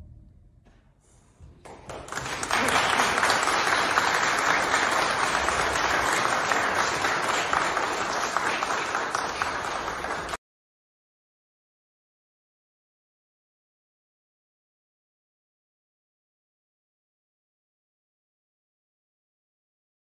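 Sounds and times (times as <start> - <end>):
audience applauding: 1.6 - 10.4.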